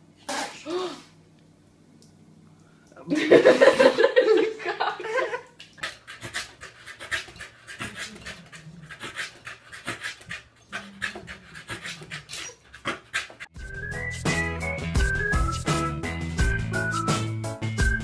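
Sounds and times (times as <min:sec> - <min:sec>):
dog panting hard: 0:05.8 - 0:13.6.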